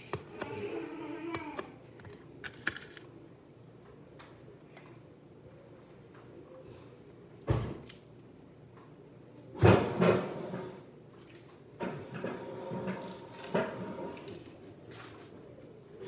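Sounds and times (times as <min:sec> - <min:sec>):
knocks and bangs in a kitchen: 0:09.6 - 0:10.7.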